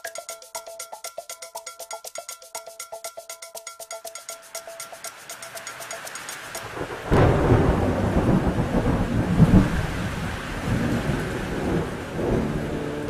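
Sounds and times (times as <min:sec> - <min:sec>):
rain: 0:05.1 - 0:13.0
thunder crack and rumble: 0:06.8 - 0:13.0.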